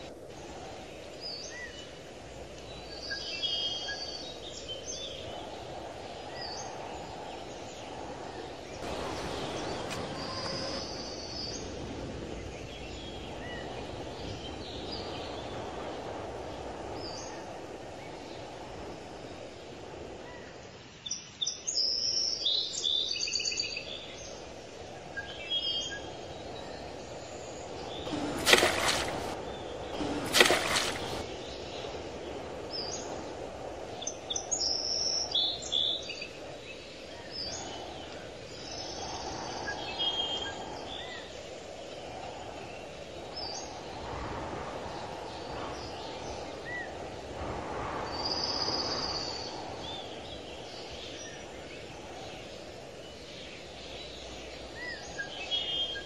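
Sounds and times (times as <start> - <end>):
small birds chirping: 0.0 - 20.1, 25.2 - 47.1
outdoor background noise: 0.0 - 56.0
short rushing noises: 8.8 - 11.5, 28.1 - 29.4, 30.0 - 31.2.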